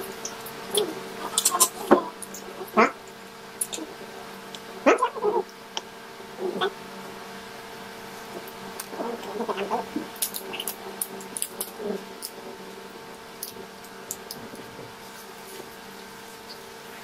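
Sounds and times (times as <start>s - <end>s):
steady low hum: 0.0s - 17.0s
shrimp shells cracking: 10.1s - 12.4s.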